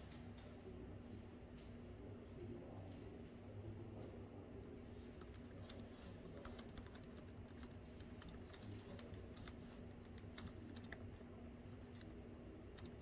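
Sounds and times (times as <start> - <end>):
steady low hum: 0.0 - 13.0
typing on laptop keyboard: 5.2 - 13.0.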